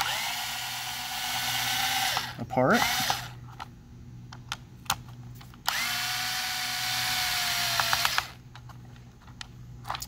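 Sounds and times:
electric screwdriver motor whine: 0:00.0 - 0:03.4, 0:05.7 - 0:08.4.

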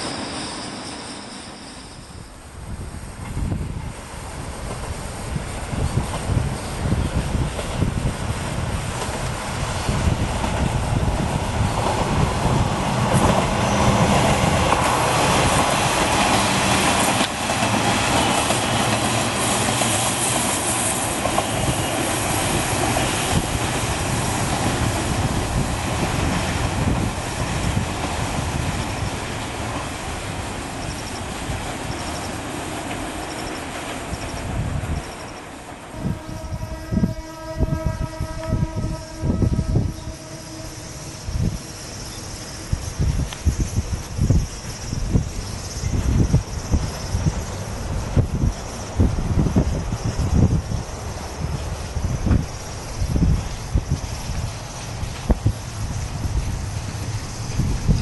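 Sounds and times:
high wheel squeal: 0:00.0 - 0:02.5, 0:13.5 - 0:14.3, 0:38.4 - 0:58.0
diesel railcar engine: 0:00.0 - 0:58.0.

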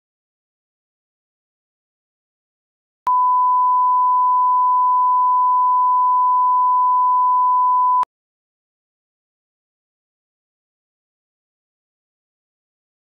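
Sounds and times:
steady reference tone beep: 0:03.1 - 0:08.0.

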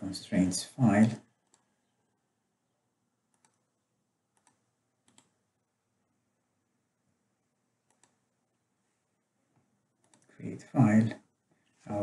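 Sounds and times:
faint computer mouse clicks: 0:01.4 - 0:01.7, 0:03.3 - 0:03.6, 0:04.4 - 0:05.4, 0:07.9 - 0:08.2, 0:10.0 - 0:10.3.

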